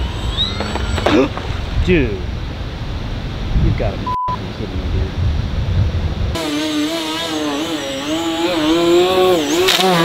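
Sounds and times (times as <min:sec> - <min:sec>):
model airplane motor buzzing: 0:06.4 - 0:10.0.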